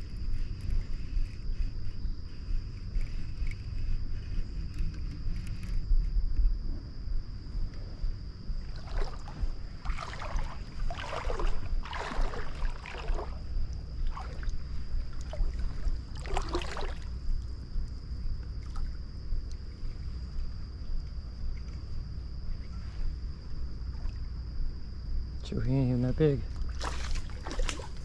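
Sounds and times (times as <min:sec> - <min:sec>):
steady low rumble: 0:00.0 - 0:28.0
fish splashing at water surface: 0:08.7 - 0:13.4, 0:26.7 - 0:28.0.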